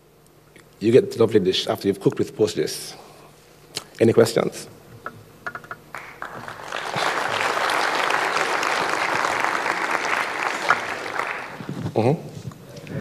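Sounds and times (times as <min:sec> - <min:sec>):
audience applauding: 0:05.9 - 0:11.7.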